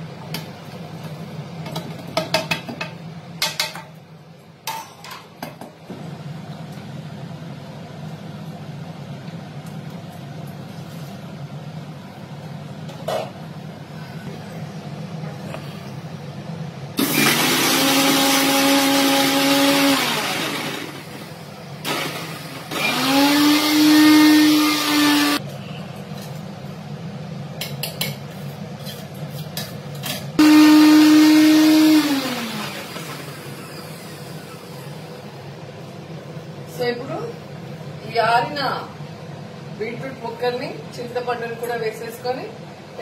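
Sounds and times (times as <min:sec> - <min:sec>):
electric mixer grinder whining: 0:17.0 - 0:25.4, 0:30.4 - 0:35.0.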